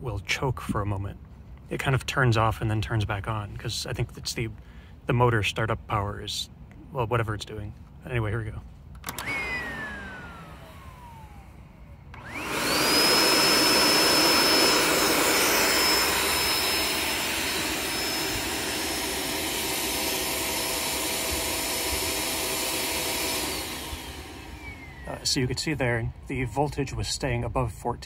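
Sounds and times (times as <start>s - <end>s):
vacuum cleaner motor whining: 9.0s - 25.8s.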